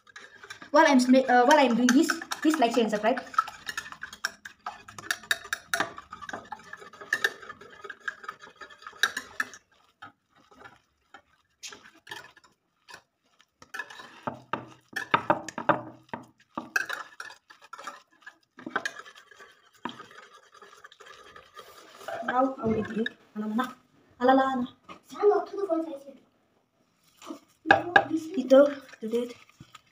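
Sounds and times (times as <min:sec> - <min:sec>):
metal whisk clicking against bowl: 0:01.4 - 0:09.6.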